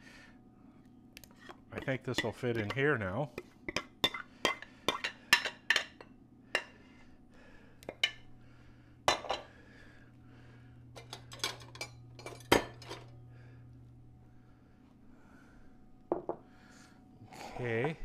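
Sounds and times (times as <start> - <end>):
steady low hum: 0.0 - 18.0
whisk tapping glass bowl: 1.8 - 2.8
dishes and utensils clinking: 9.1 - 9.5, 11.0 - 13.1.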